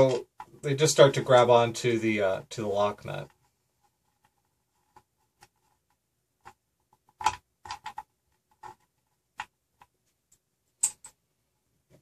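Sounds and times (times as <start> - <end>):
bolts and nuts clicking: 10.3 - 11.2.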